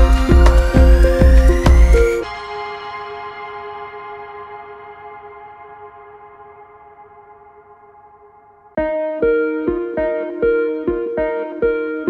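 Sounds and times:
plucked melody: 0.0s - 8.1s, 8.8s - 12.0s
soft held chord: 0.0s - 12.0s.

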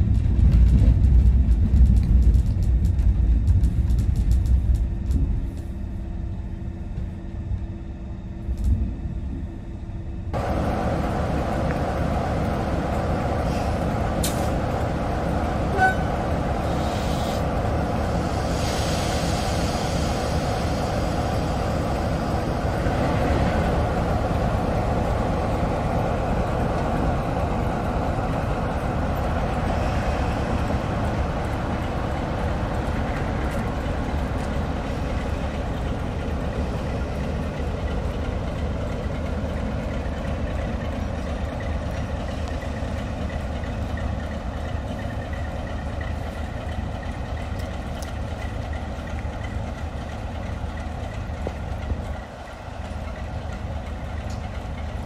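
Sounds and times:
diesel locomotive engine running: 0.0s - 55.0s.

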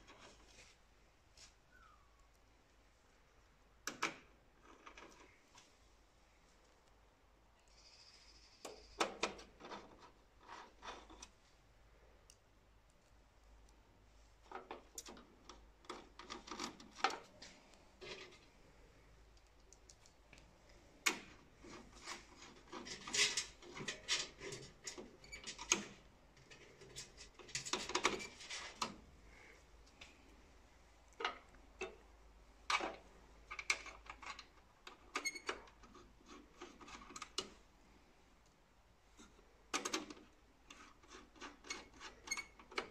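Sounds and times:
clicks and scrapes of small parts: 0.0s - 0.8s, 3.8s - 5.8s, 7.6s - 11.6s, 14.4s - 30.4s, 32.6s - 37.8s, 38.4s - 42.9s
screwdriver turning screws in metal: 39.8s - 42.9s.

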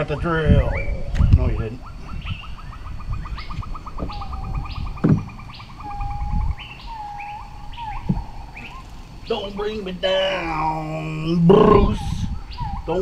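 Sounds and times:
birds chirping: 0.0s - 13.0s
knocks on wooden trim: 4.9s - 5.5s.

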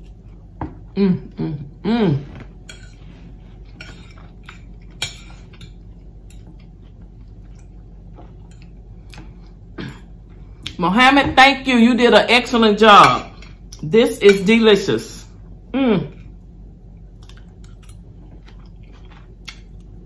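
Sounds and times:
person humming: 1.0s - 2.4s, 15.7s - 16.2s.

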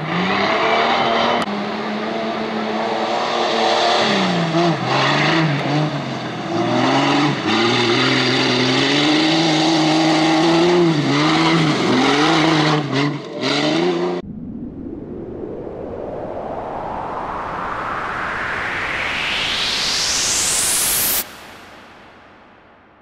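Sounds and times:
engine revving hard: 0.0s - 14.2s.

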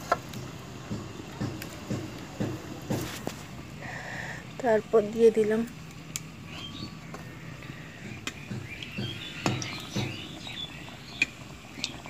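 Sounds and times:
dough frying in hot oil: 0.0s - 12.0s
birds chirping: 3.8s - 12.0s.

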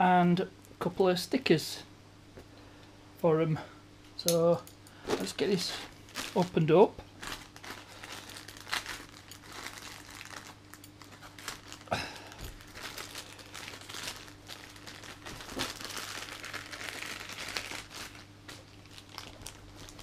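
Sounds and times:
plastic bag crinkling: 5.1s - 20.0s.

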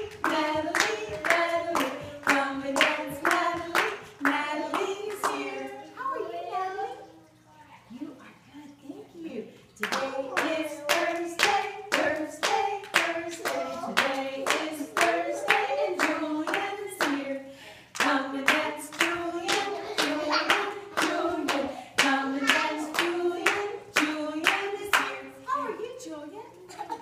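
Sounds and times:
hand clapping: 0.0s - 5.5s, 9.8s - 17.2s.

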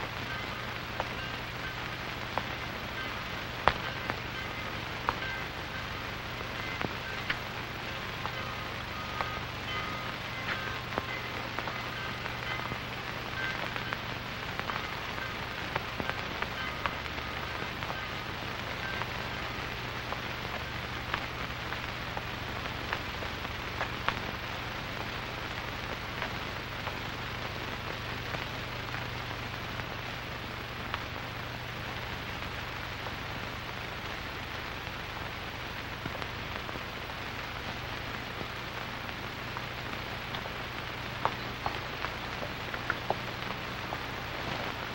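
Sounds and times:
film soundtrack hiss and crackle: 0.0s - 44.9s
low steady hum: 0.0s - 44.9s.

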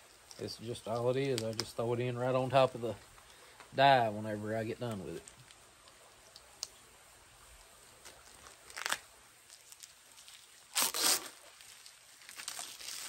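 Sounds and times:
wax being broken up: 0.2s - 1.8s, 8.0s - 13.0s.

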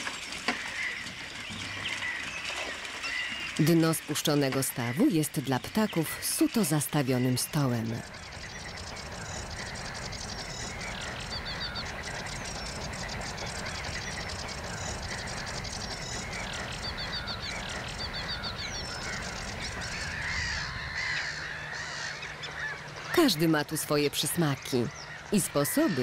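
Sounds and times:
waterbirds calling: 0.0s - 26.0s
steady low rumble: 8.0s - 23.1s.

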